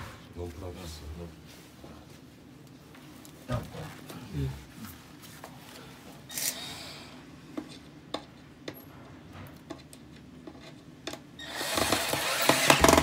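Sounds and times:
cordless drill driving screw: 11.4 - 13.0.

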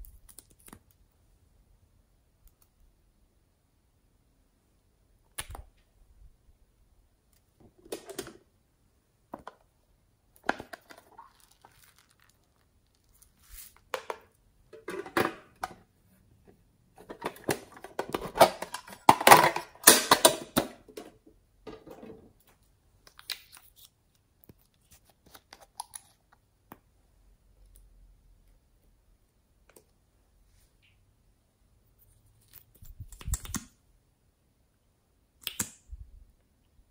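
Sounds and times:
crinkly rustling: 10.8 - 13.9.

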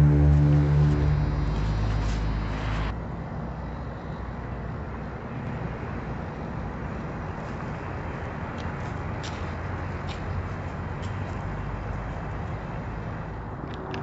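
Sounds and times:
music cue: 0.0 - 2.9
low outdoor night rumble: 0.0 - 14.0.

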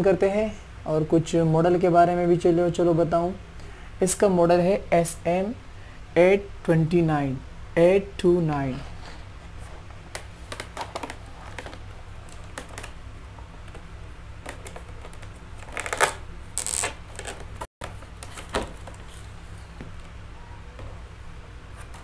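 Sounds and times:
plastic packaging clicking and crackling: 10.1 - 13.0, 13.6 - 19.4.

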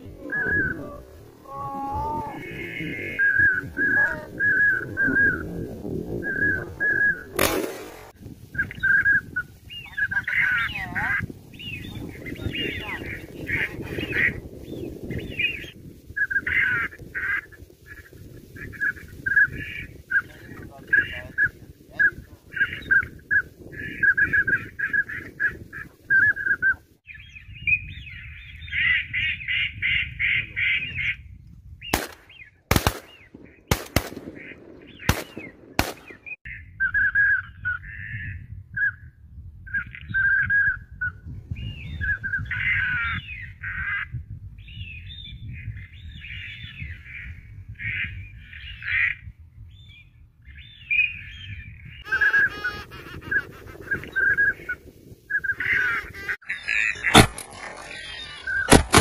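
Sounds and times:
sharp cracks: 7.3 - 8.2, 31.9 - 36.4, 57.1 - 58.0, 58.7 - 59.0
ducks quacking: 52.0 - 54.7, 55.5 - 59.0.

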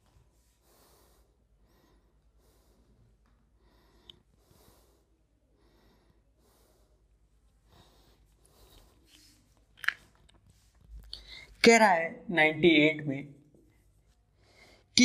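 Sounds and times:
faint breaths: 0.0 - 9.6, 13.8 - 15.0.

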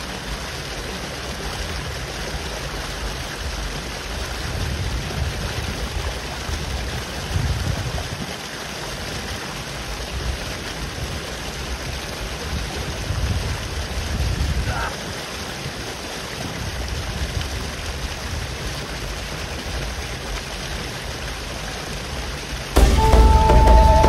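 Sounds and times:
river water rushing: 0.0 - 24.0
wind buffeting the microphone: 3.5 - 8.4, 10.0 - 14.9, 15.6 - 20.0.

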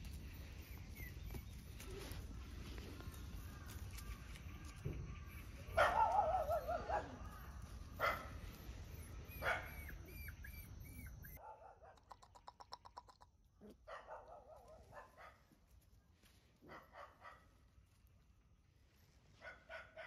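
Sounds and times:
puppies whimpering and yipping: 0.0 - 11.4.

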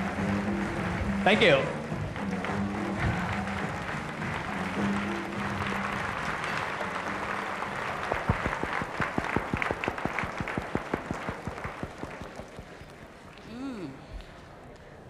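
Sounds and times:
audience applauding: 0.0 - 13.5
sharp close hand claps: 2.2 - 13.1.

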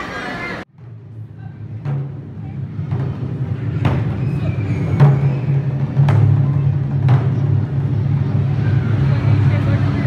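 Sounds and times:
low booming drum rumble: 0.7 - 10.0.

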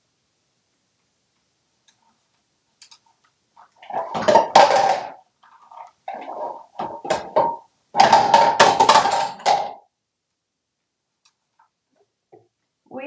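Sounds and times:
plastic objects clattering in sink: 3.6 - 9.9.

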